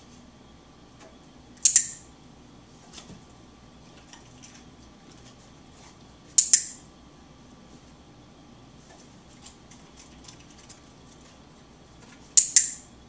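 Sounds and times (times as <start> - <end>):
dog-training clicker clicking: 1.6 - 2.0, 6.4 - 6.8, 12.4 - 12.8.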